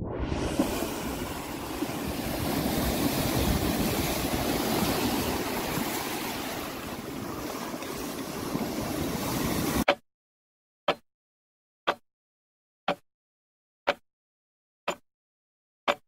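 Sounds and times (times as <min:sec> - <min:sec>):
water rushing along hull: 0:00.0 - 0:09.9
wind: 0:00.0 - 0:09.9.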